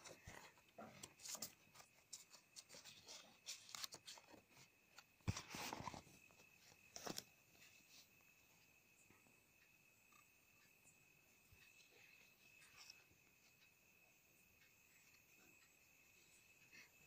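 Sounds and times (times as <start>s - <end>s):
paper card rustling: 0.0s - 7.3s.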